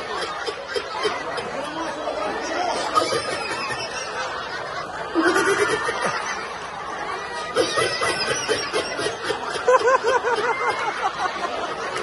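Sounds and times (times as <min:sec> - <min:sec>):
people laughing and chattering: 0:00.0 - 0:12.0
person laughing ha ha ha: 0:05.2 - 0:06.2, 0:07.7 - 0:11.4.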